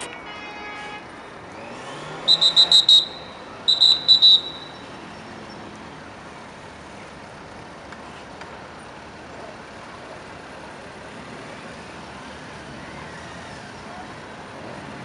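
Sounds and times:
road traffic noise: 0:00.0 - 0:15.0
shrill whistle blast: 0:02.3 - 0:04.8.

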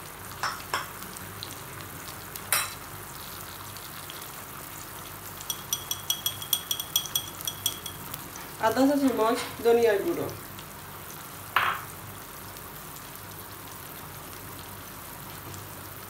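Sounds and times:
oil sizzling in a frying pan: 0:00.0 - 0:16.0
steel spoon clinking on metal: 0:05.4 - 0:08.2.

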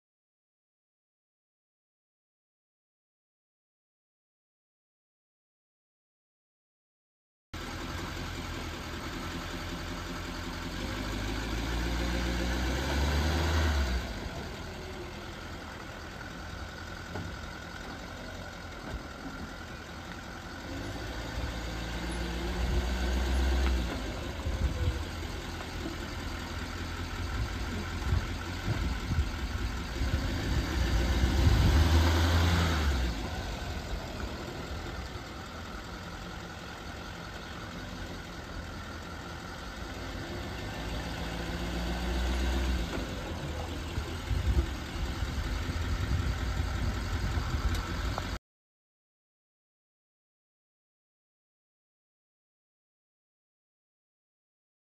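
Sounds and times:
diesel truck engine idling: 0:07.6 - 0:48.4.

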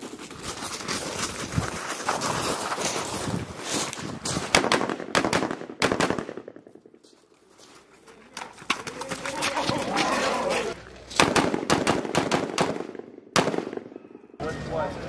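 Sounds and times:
small-arms gunshots: 0:04.5 - 0:06.6, 0:11.2 - 0:14.0.

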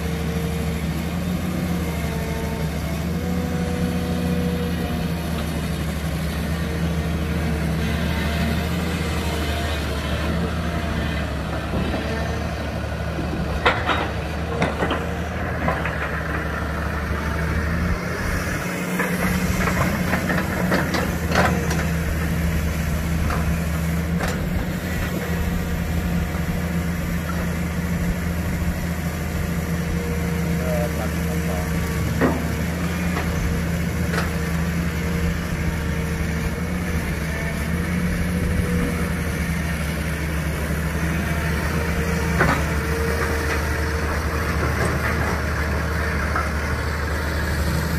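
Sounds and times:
excavator diesel engine running: 0:00.0 - 0:47.9
metal clanks and knocks: 0:13.4 - 0:16.5, 0:19.0 - 0:21.9, 0:32.1 - 0:33.3.

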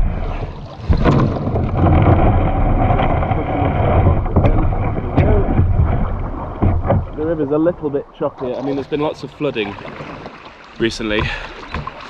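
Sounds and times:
low rumble: 0:00.0 - 0:08.0
river water rushing and splashing: 0:00.0 - 0:12.0
sharp knocks: 0:03.9 - 0:07.2.

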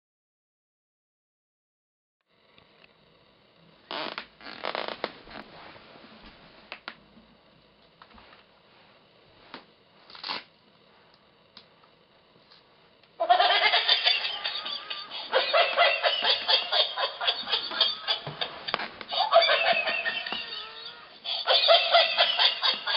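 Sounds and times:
toy laughing: 0:13.2 - 0:22.9.

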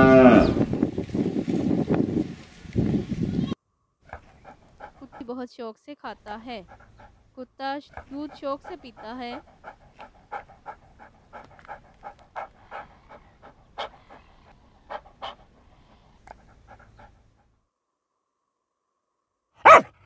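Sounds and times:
dog panting: 0:04.1 - 0:05.4, 0:06.1 - 0:17.6
dog barking: 0:19.6 - 0:20.0.

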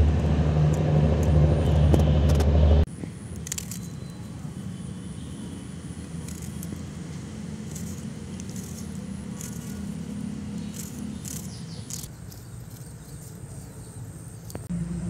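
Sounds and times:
low rumble: 0:00.0 - 0:02.9
knife scraping onion skin: 0:06.1 - 0:13.8.

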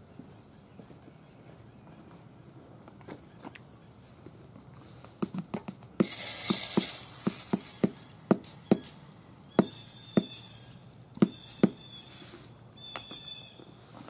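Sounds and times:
burning powder popping and crackling: 0:05.2 - 0:12.6
hissing flare-up: 0:06.0 - 0:11.1.

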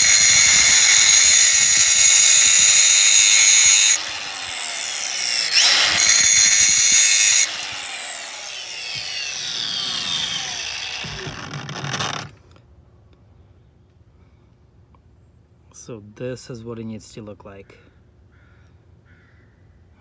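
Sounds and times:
drill bit grinding hiss: 0:00.0 - 0:12.3
sharpener motor whine: 0:00.0 - 0:12.3.

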